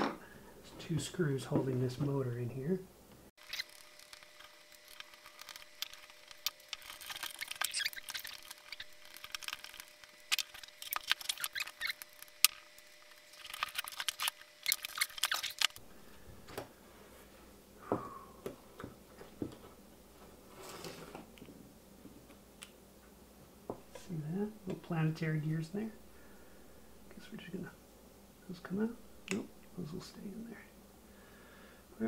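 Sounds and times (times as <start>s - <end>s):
small plastic and metal parts clicking: 13.4s - 15.8s.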